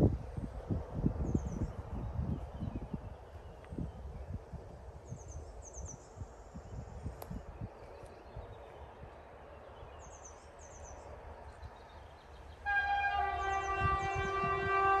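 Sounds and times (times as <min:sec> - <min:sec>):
locomotive air horn chord: 0:12.6 - 0:15.0.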